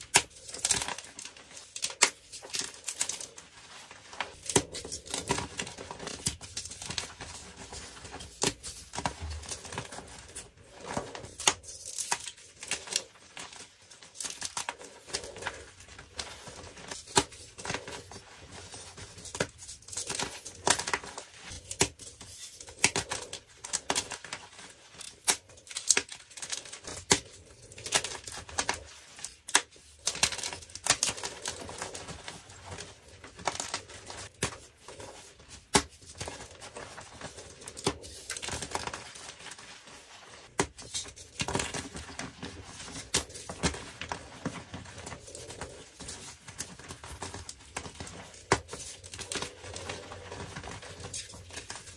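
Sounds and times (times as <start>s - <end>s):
chalk blocks crunching and snapping: 0.0s - 3.5s, 4.2s - 51.9s.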